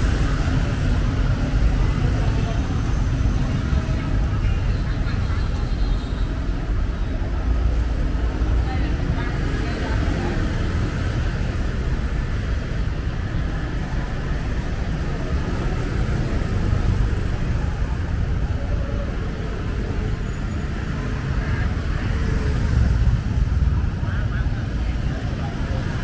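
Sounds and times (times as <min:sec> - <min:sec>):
cars passing: 0:00.0 - 0:26.0.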